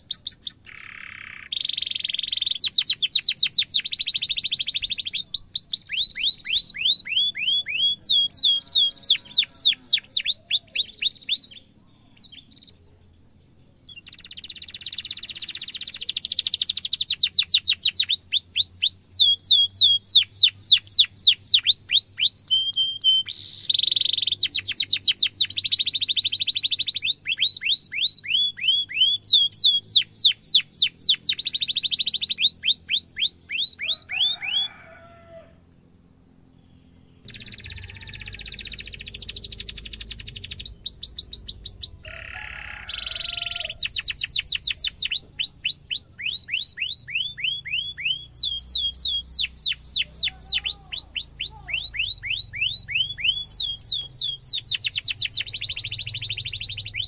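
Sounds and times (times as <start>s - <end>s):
canary singing: 0.0s - 57.0s.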